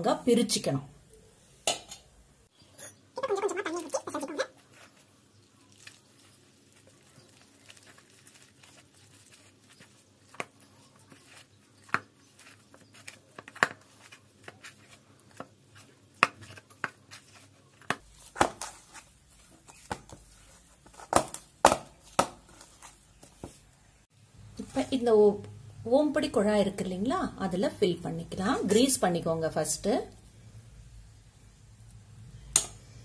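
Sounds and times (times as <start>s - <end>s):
dough squishing: 3.2s - 23.9s.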